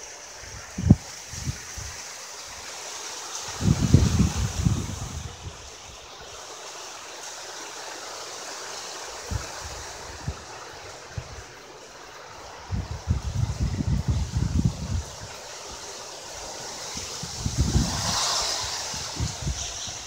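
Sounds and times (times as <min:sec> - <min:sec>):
wind and rain rushing: 0:00.0 - 0:20.0
wind buffeting microphone: 0:00.4 - 0:02.7, 0:03.5 - 0:06.3, 0:09.1 - 0:20.0.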